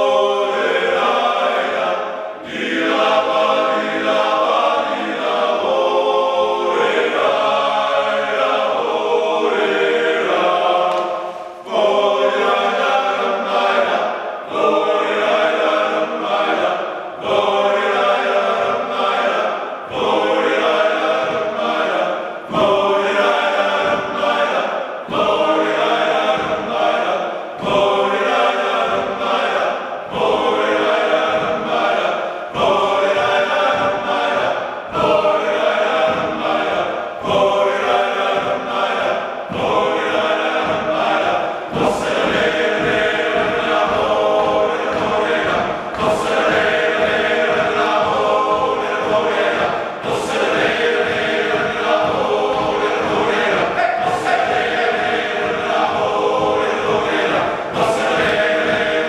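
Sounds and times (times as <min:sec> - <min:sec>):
male choir singing a cappella: 0:00.0 - 0:59.0.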